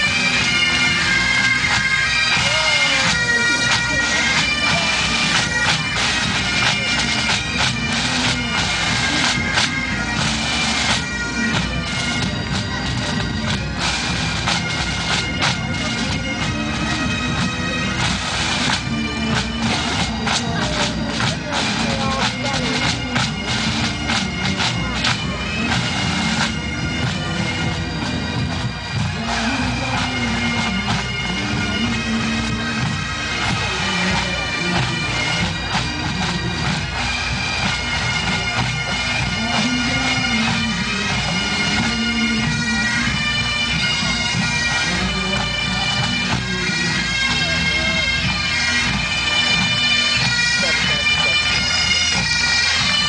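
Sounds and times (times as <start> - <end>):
bagpipes playing: 0.0 - 53.0
drum strokes: 0.0 - 53.0.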